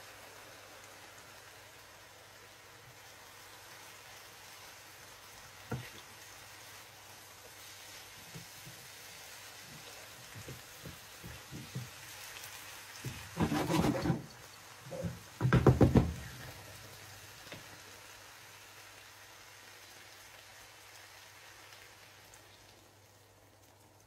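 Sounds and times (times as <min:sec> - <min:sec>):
spatula scraping a frying pan: 0:13.0 - 0:14.4.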